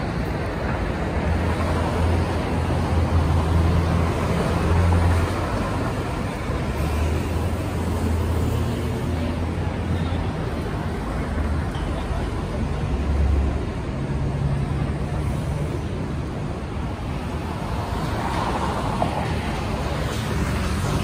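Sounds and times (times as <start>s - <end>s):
cars passing: 0.0s - 21.0s
low rumble of engines and tyres: 0.0s - 21.0s.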